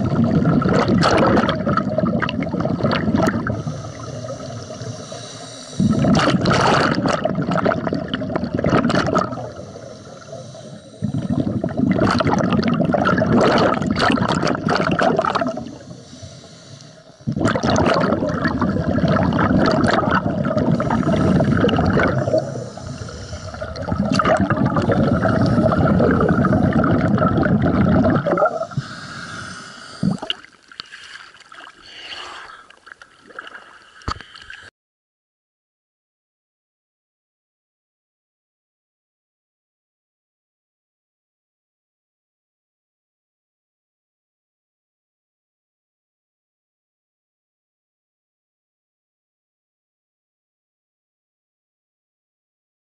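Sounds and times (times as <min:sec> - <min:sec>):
underwater exhaust bubbles: 0:00.0 - 0:31.6
water splashing: 0:17.4 - 0:29.1, 0:29.8 - 0:34.7.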